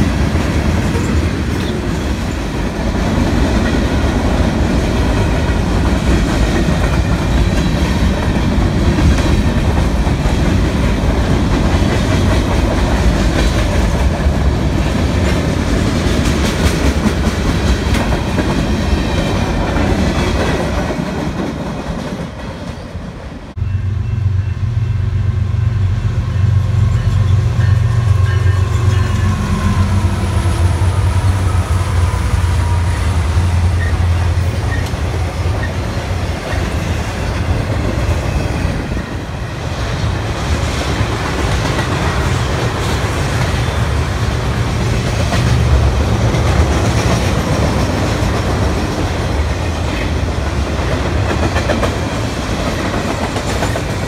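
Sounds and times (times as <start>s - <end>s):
diesel locomotive engine rumble: 0.0s - 54.0s
train wheels clicking over rail joints: 44.7s - 54.0s.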